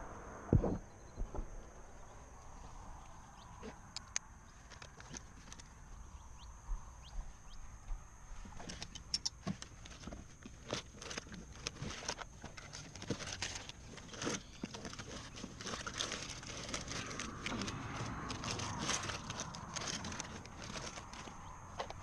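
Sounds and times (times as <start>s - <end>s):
hands handling fishing gear: 8.4s - 22.0s.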